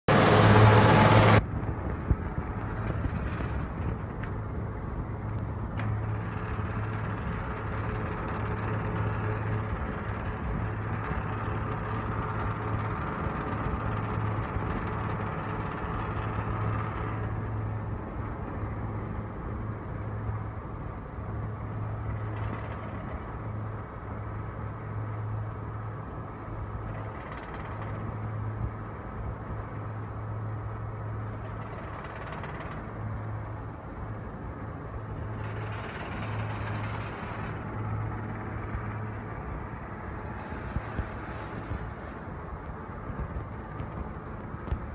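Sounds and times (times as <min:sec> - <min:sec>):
shredder machine hum: 0:00.1 - 0:01.4
loud burst of noise: 0:00.1 - 0:01.5.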